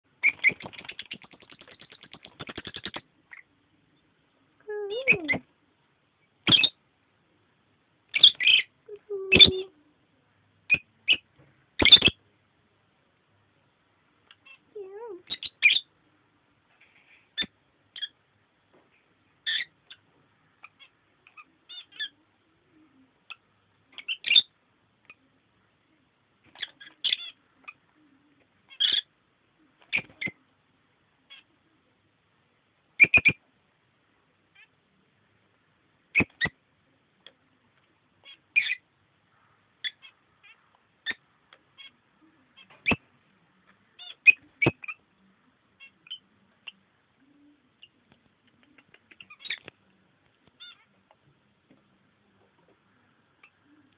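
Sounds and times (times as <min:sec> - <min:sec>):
lovebirds giving sharp high calls: 0:00.2 - 0:03.5, 0:06.4 - 0:06.8, 0:08.1 - 0:08.7, 0:10.7 - 0:12.2, 0:14.3 - 0:15.9, 0:28.7 - 0:29.1, 0:29.9 - 0:30.4, 0:33.0 - 0:33.4, 0:36.1 - 0:36.6, 0:38.2 - 0:38.8, 0:42.6 - 0:43.1, 0:44.0 - 0:45.0, 0:48.7 - 0:49.7.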